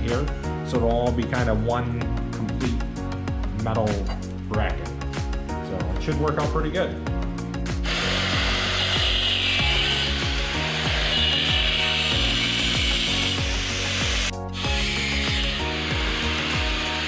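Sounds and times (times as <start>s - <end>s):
angle grinder cutting steel: 7.8s - 17.0s.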